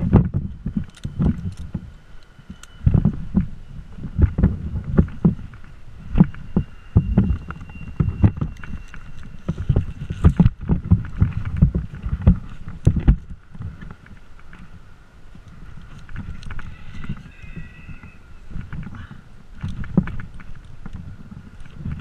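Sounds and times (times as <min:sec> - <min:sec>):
rope rubbing: 0:02.6 - 0:14.7.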